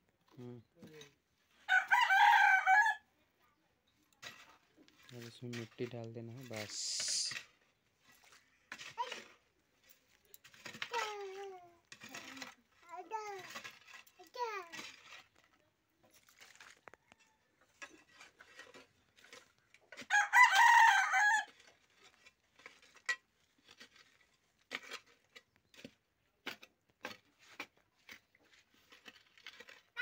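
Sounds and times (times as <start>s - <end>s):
rooster crowing: 1.7s - 3.0s, 20.1s - 21.5s.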